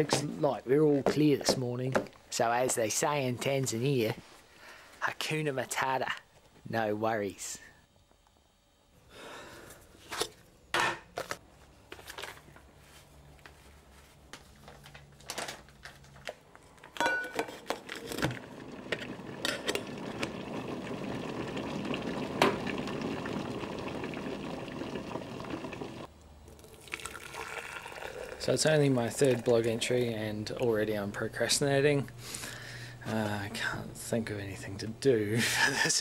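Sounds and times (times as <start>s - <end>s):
electric kettle hissing: 18.2s - 35.2s.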